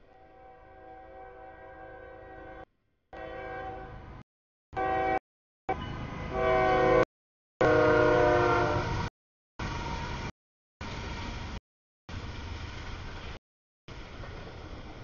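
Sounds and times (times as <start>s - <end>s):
locomotive horn blasts: 0.0s - 4.1s, 4.8s - 9.1s
train passing rumble: 7.6s - 15.0s.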